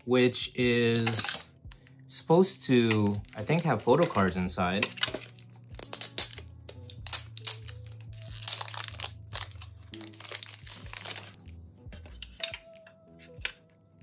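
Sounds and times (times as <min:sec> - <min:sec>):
plastic wrap crinkling and tearing: 0:02.8 - 0:11.4.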